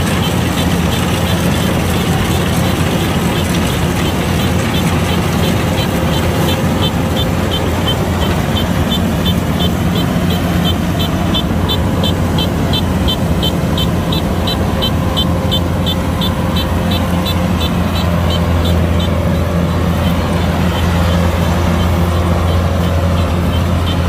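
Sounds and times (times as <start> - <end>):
combine harvester engine drone: 0.0 - 24.0
high regular ticking: 0.0 - 24.0.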